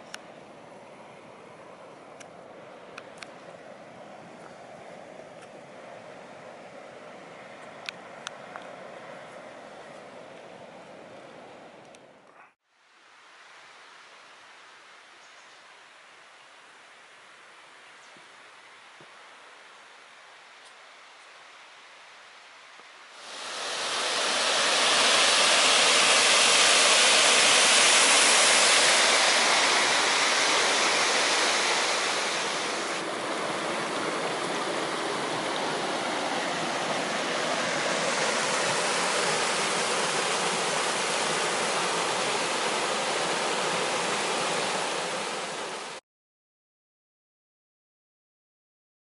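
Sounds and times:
stream rushing over rocks: 23.1 - 46.0.

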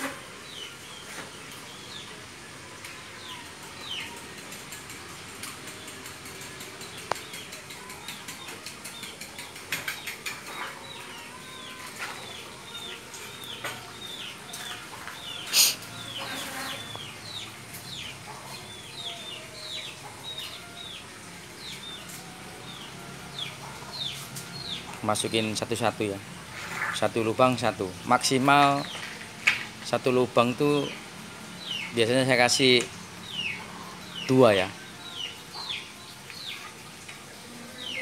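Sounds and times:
birds chirping: 0.0 - 38.0.

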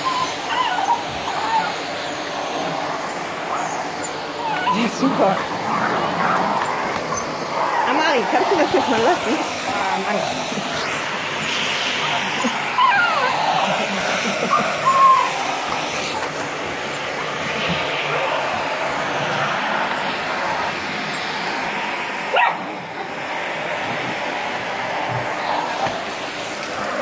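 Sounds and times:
puppy yelp: 0.0 - 1.8, 3.5 - 5.0, 12.7 - 13.7, 14.5 - 15.6
puppies whining and yipping: 0.0 - 9.7, 10.4 - 16.3
vacuum cleaner running: 0.0 - 27.0.

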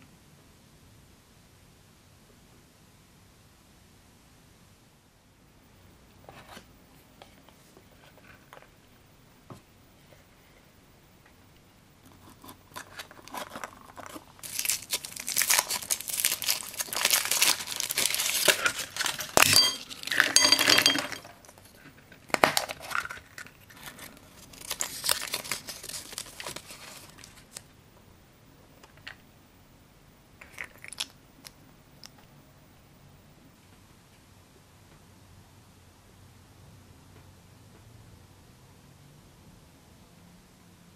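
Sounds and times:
chocolate shell cracking: 12.2 - 21.3
foil wrapper crinkling: 12.7 - 20.5, 21.4 - 27.6.

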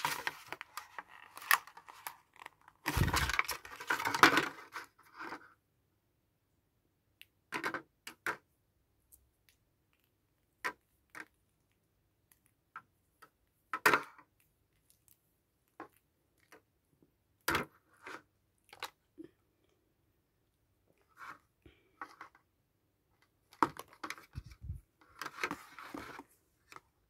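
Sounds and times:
earphones clicking and rustling: 0.0 - 4.7.

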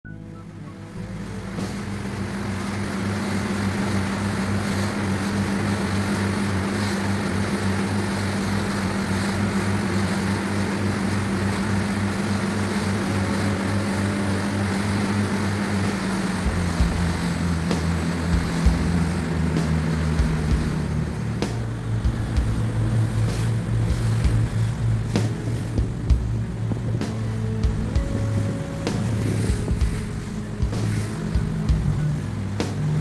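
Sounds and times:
boat engines droning: 0.0 - 33.0
water rushing past hull: 0.1 - 33.0
wind noise: 1.0 - 33.0.

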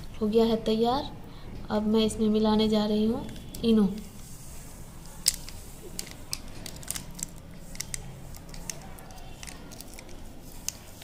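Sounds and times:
plastic sachet crinkling: 5.0 - 11.0.

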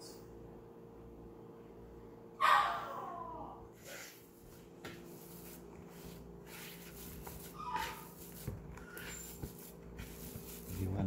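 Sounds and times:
hand kneading dough: 4.3 - 11.0.

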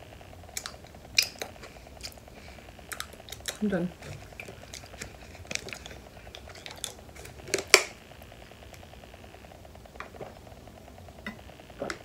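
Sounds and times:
plastic bottle crackling: 2.9 - 8.6
plastic bottle crack: 3.0 - 8.0.

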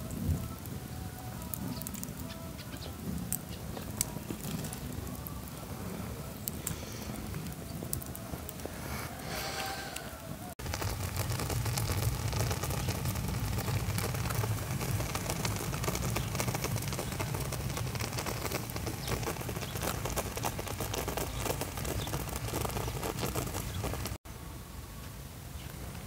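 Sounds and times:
crackling in charcoal embers: 0.0 - 24.2
steady low rumble: 10.6 - 24.2.

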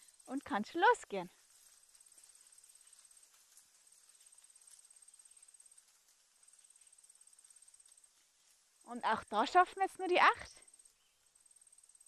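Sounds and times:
high-pitched insect trill: 0.0 - 12.0.

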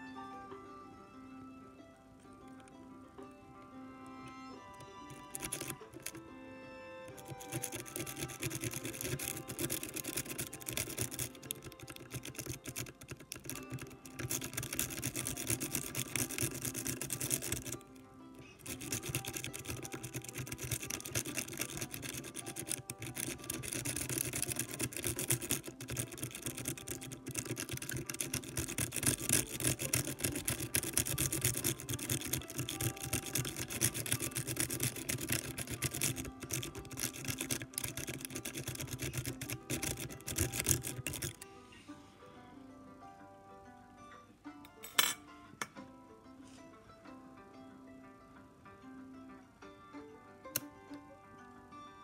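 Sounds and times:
faint background music: 0.0 - 52.0
lock pick scratching in lock: 4.8 - 6.2, 7.1 - 17.8, 18.6 - 41.4.

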